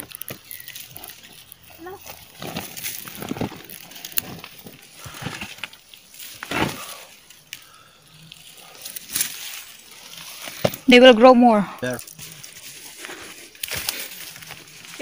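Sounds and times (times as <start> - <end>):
leaves and twigs rustling: 0.0 - 15.0.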